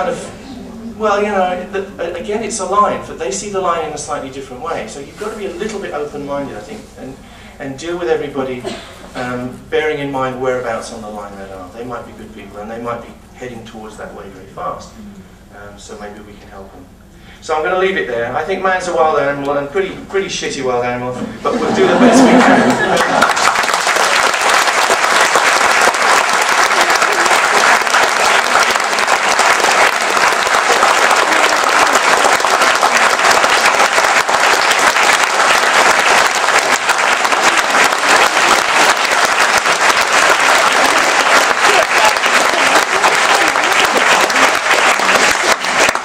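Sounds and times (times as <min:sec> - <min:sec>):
large audience applauding: 0:21.8 - 0:46.0.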